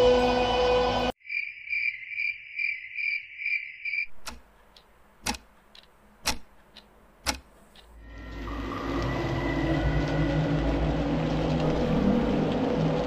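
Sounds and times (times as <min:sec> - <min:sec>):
crickets chirping: 0:01.2 - 0:04.2
clock ticking: 0:04.0 - 0:08.0.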